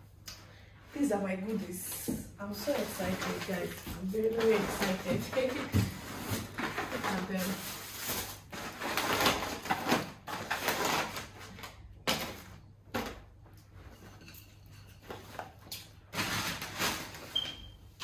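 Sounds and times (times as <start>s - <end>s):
packaging rustling and crinkling: 2.5s - 13.2s.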